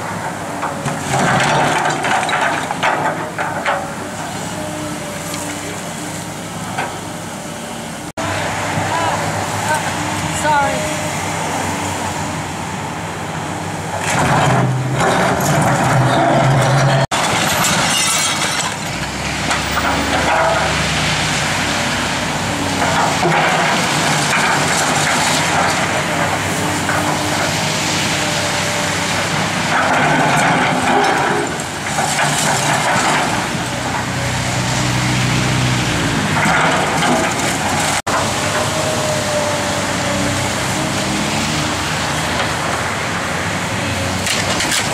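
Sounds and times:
excavator diesel engine under load: 0:00.0 - 0:44.9
crunching and clattering rubble: 0:00.6 - 0:04.0, 0:14.0 - 0:20.8, 0:22.7 - 0:27.6, 0:29.2 - 0:34.1, 0:36.2 - 0:38.6, 0:44.2 - 0:44.9.

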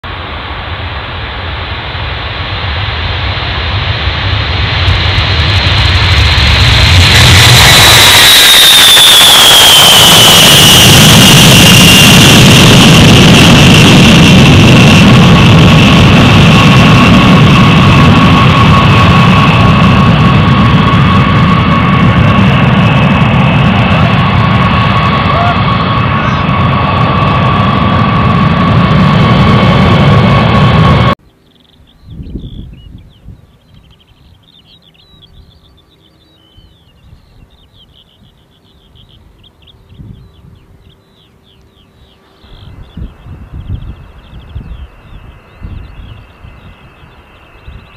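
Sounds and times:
high jet whine: 0:00.0 - 0:31.2, 0:32.1 - 0:47.9
jet engines deep rumble: 0:00.0 - 0:47.9
bird twittering song: 0:31.2 - 0:47.9.

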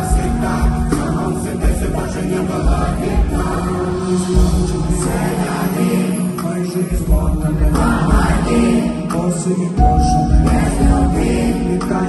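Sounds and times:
deep bass beat: 0:00.0 - 0:05.4
live concert music: 0:00.0 - 0:12.0.

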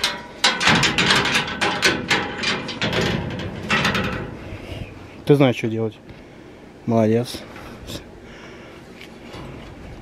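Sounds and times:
clattering knocks and rattles: 0:00.0 - 0:04.5.

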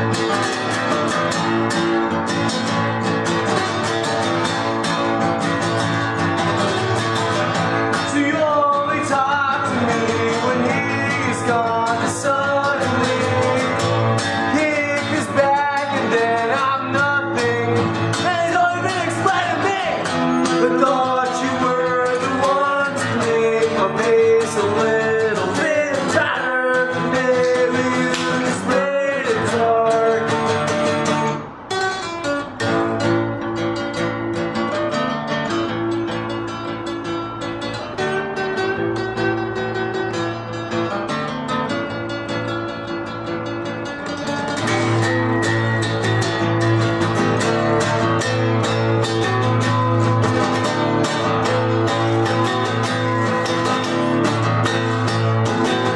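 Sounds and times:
acoustic guitars strumming: 0:00.0 - 0:55.9
person singing: 0:07.9 - 0:30.8.

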